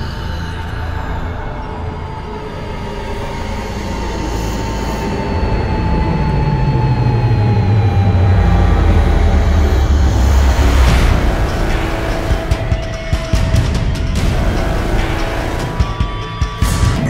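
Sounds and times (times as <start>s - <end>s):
low rumble: 0.0s - 17.0s
held tones falling in pitch: 4.1s - 13.1s.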